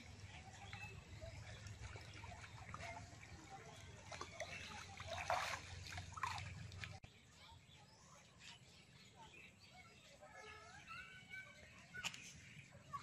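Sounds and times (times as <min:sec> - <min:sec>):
small splashes of shallow water: 0:00.0 - 0:07.1
water trickling: 0:00.6 - 0:07.0.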